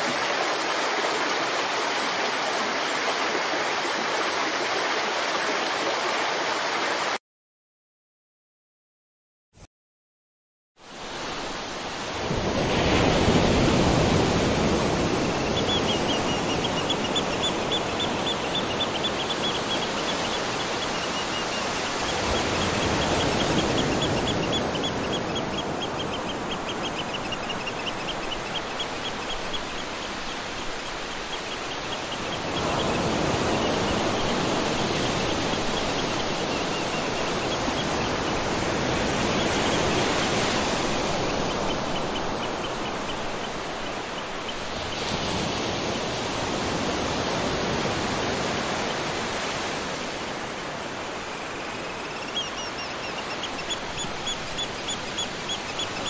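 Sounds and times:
water rushing over rocks: 0.0 - 7.2.

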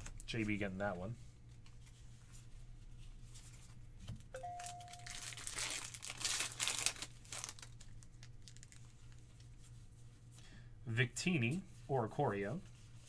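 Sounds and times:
two-note chime: 4.4 - 5.2
foil wrapper crinkling and tearing: 4.6 - 9.2.

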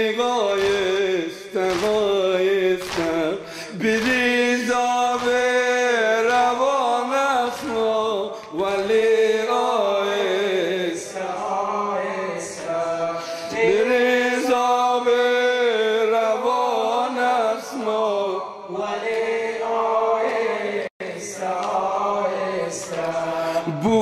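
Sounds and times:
man chanting a lament: 0.0 - 19.0, 23.2 - 24.0
man breathing between phrases: 3.4 - 3.8.

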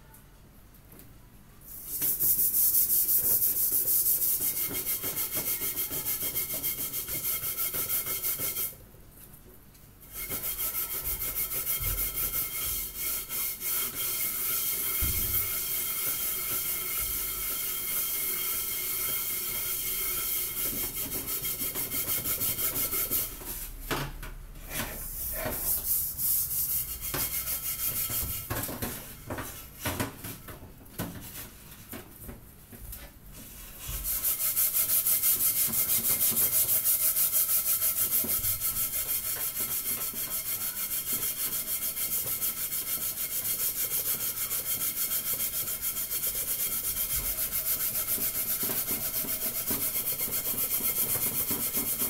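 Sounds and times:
scouring pad scrubbing pot: 33.6 - 52.0.

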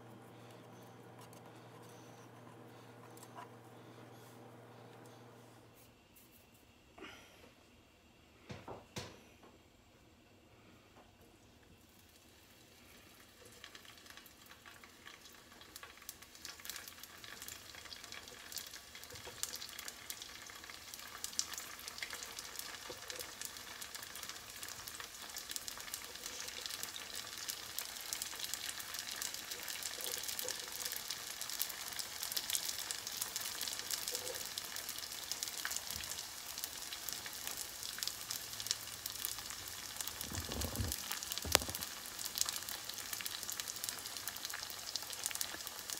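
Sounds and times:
oil sizzling and crackling: 11.7 - 45.9.

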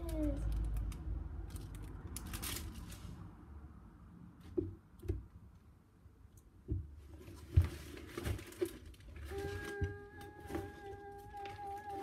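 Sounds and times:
rustling of craft supplies: 0.0 - 3.4, 6.7 - 12.0.

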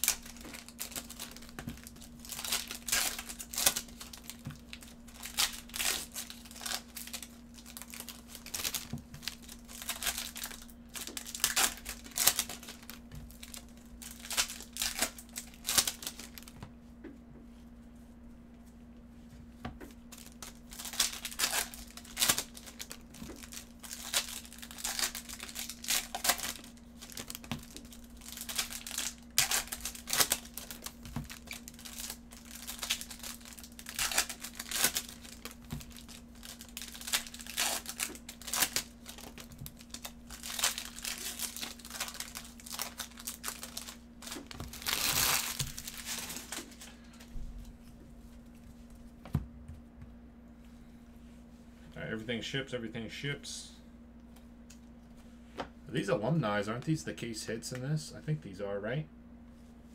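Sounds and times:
foil wrappers tearing and crinkling: 0.0 - 16.6, 20.1 - 47.2.

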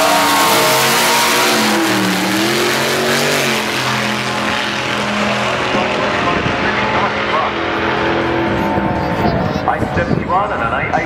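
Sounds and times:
race cars accelerating: 0.0 - 11.0.

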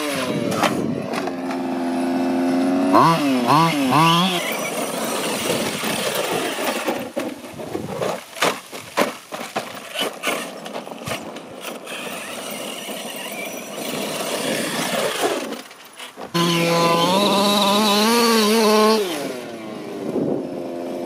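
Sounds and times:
small petrol engine running: 0.0 - 8.1, 9.8 - 21.0
tyres scrabbling on gravel: 4.1 - 19.0
electric motor whine: 16.3 - 21.0.

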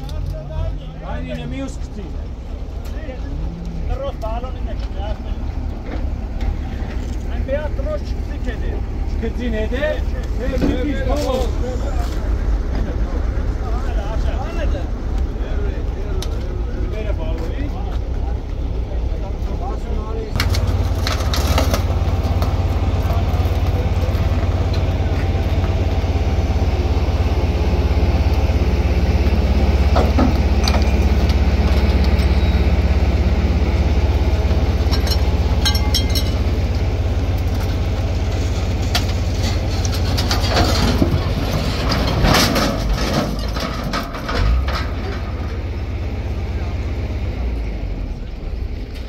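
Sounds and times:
truck engine running under load: 0.0 - 49.0
metal and stone knocks: 34.9 - 36.4.

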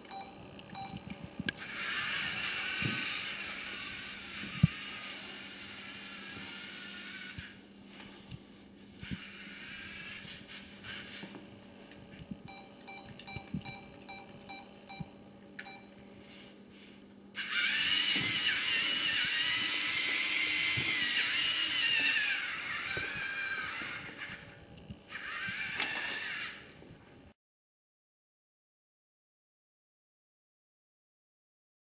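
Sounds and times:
toy car motors whining: 1.6 - 7.6, 9.0 - 11.3, 17.3 - 26.7
short electronic beeps: 12.5 - 15.9.

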